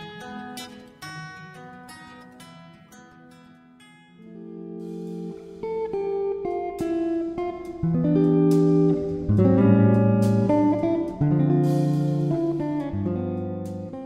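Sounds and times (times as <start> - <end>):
plucked guitar: 0.0 - 14.0
bass line: 7.8 - 14.0.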